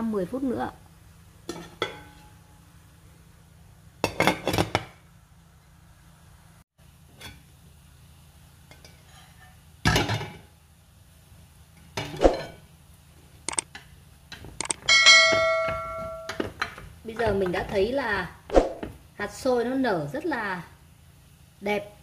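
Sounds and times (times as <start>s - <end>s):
steamer pot and lid clanking: 1.5s - 2.4s, 4.0s - 5.0s, 9.8s - 10.5s, 13.7s - 16.8s.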